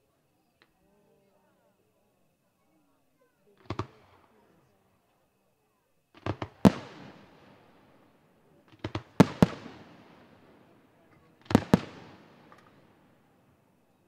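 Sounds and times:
firework shells bursting: 6.2s - 7.6s, 8.7s - 10.7s, 11.4s - 13.2s.

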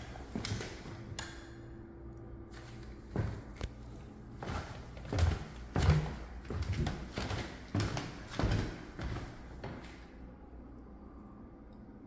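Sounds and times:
footsteps on wooden stairs: 4.4s - 9.9s.

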